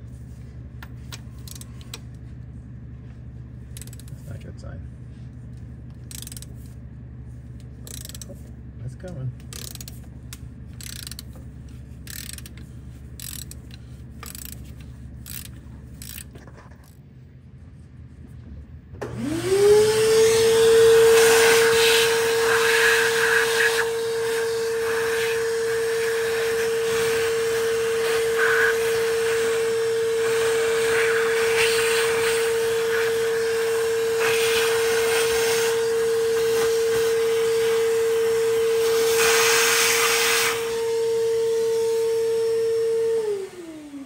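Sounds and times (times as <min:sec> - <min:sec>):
metal tools clicking: 0:03.8 - 0:04.2, 0:06.0 - 0:06.6, 0:07.8 - 0:08.3, 0:09.5 - 0:10.0, 0:10.8 - 0:11.4, 0:12.1 - 0:12.6, 0:13.2 - 0:17.0
electric motor humming: 0:19.0 - 0:44.0.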